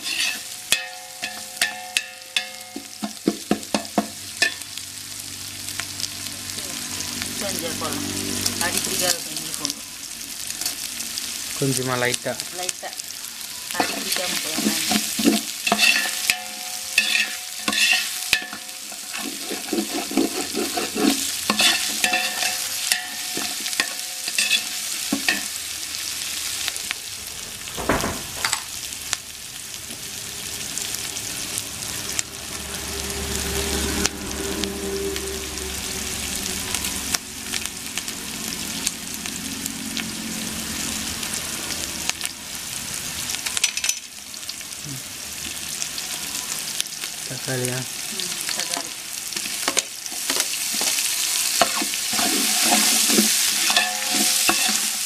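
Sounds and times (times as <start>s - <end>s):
ladle scraping metal pot: 0.0s - 4.6s, 13.8s - 25.5s, 51.6s - 55.0s
onions sizzling in oil: 0.0s - 55.0s.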